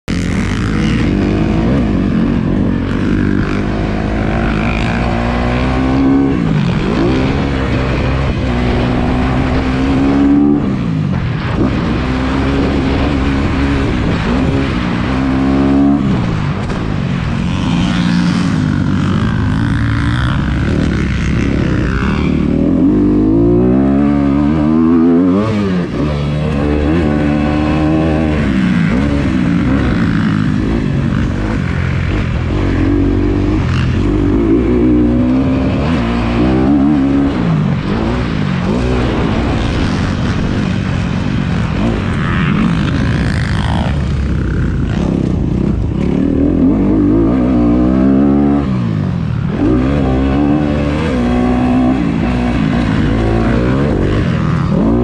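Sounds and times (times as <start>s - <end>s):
dirt bike engine revving: 0.1s - 55.0s
wind rush: 0.4s - 55.0s.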